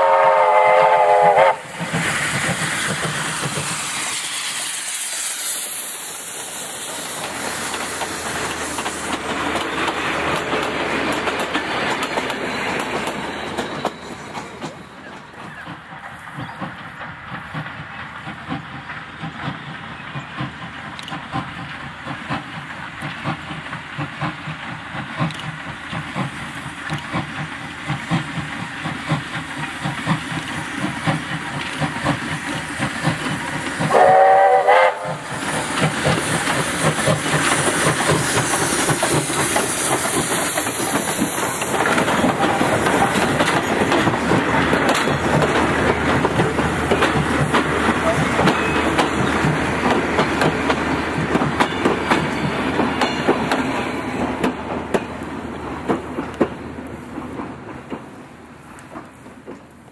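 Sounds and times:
steam whistle blast: 0.0 - 1.8, 33.9 - 35.3
hiss of steam: 0.0 - 49.9
steam locomotive exhaust beating: 0.0 - 59.9
train carriages rolling by: 0.0 - 59.9.

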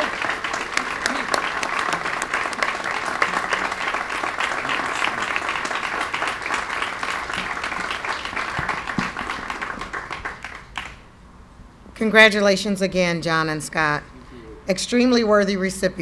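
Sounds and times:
crowd applauding: 0.0 - 11.0.

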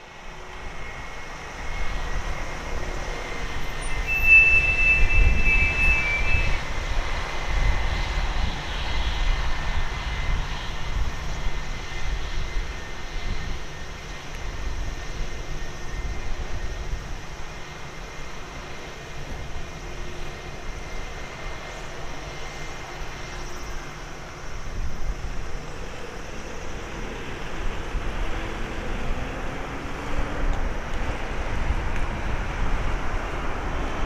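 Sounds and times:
high whine: 0.0 - 7.8
jet engines rumbling: 0.0 - 34.0.

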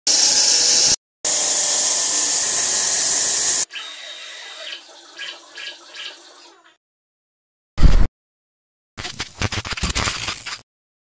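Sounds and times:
stone saw grinding hiss: 0.1 - 4.8.

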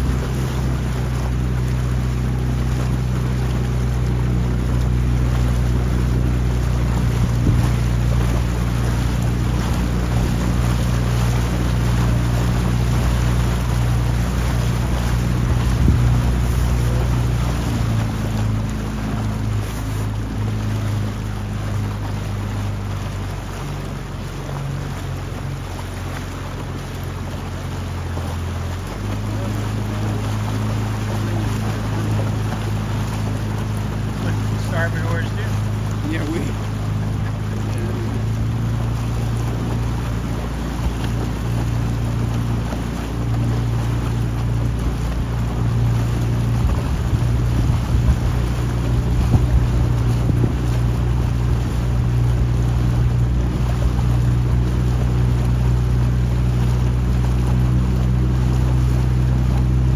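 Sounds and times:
motorboat engine running: 0.0 - 59.9
wind buffeting microphone: 3.5 - 19.6, 35.6 - 58.1.

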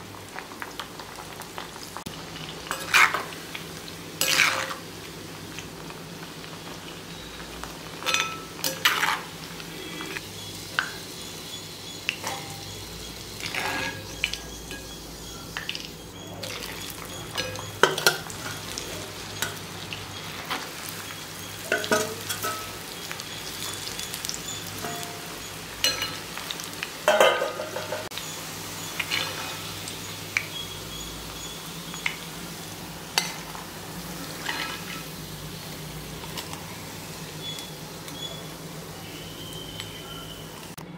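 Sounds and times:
food sizzling in hot oil: 0.0 - 40.8
metal spoon clinking on pan: 8.0 - 9.2, 12.1 - 12.7, 17.3 - 18.7, 21.6 - 22.8, 24.8 - 26.4, 27.1 - 28.1, 33.2 - 33.5.

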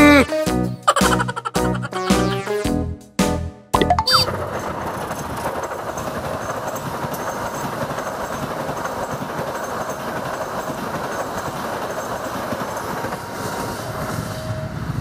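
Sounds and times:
train wheels on rails: 4.2 - 15.0.

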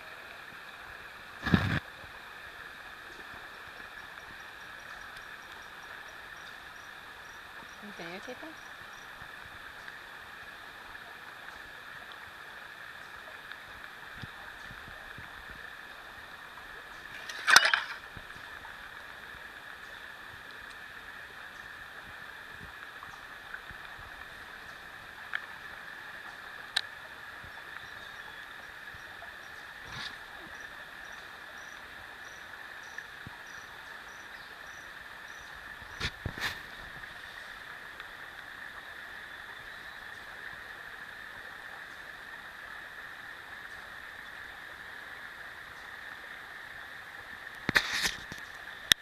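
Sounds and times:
insects trilling: 2.4 - 49.0
river water rushing: 9.2 - 27.4.

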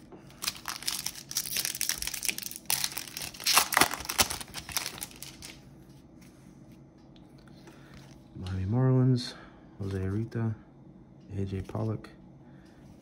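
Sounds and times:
wrapper tearing and crinkling: 0.3 - 5.6.

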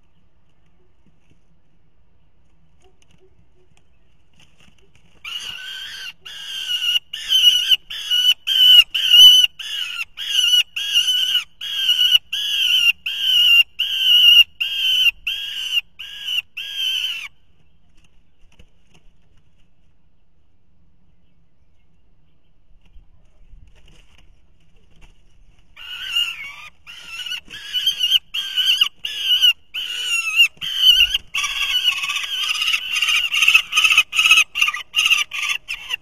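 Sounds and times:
falcon harsh wailing calls: 5.2 - 17.3, 25.8 - 36.0.

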